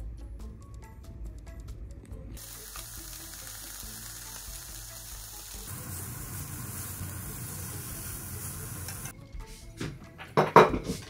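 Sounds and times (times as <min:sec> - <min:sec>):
meat sizzling in a frying pan: 0:02.4 - 0:09.1.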